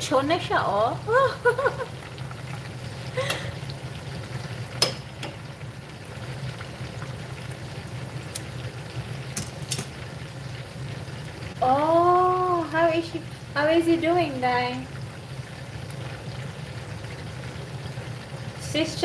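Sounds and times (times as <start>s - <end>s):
chicken deep-frying sizzle: 0.0s - 19.0s
metal tongs clicking on pot: 4.8s - 5.4s, 9.3s - 10.0s.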